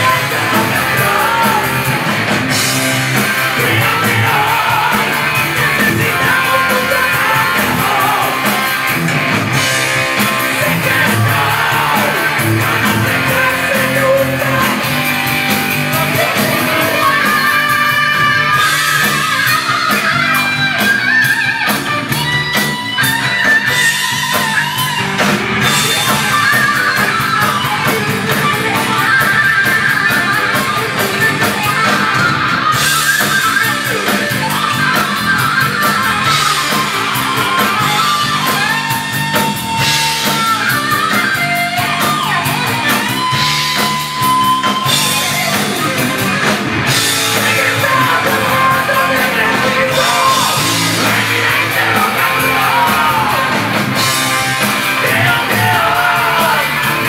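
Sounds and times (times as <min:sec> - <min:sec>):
bass guitar: 0:00.0 - 0:57.0
drum kit: 0:00.0 - 0:57.0
electric guitar: 0:00.0 - 0:57.0
man singing into a microphone: 0:03.6 - 0:08.7, 0:10.6 - 0:14.9, 0:47.4 - 0:53.6, 0:55.0 - 0:56.8.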